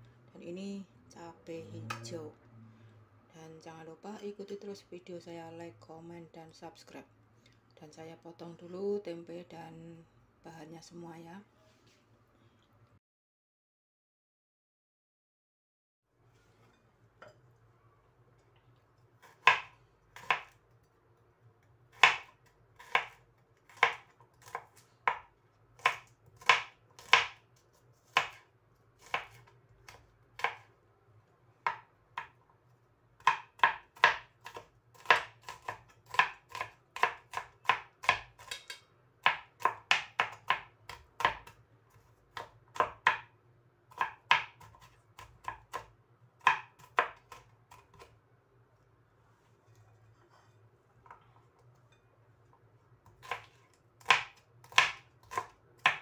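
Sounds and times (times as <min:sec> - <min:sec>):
knife chopping on plastic board: 0:19.2 - 0:20.6, 0:21.9 - 0:27.4, 0:28.1 - 0:28.4, 0:29.0 - 0:30.7, 0:31.6 - 0:32.4, 0:33.2 - 0:41.6, 0:42.3 - 0:43.3, 0:43.9 - 0:48.2, 0:53.0 - 0:56.0.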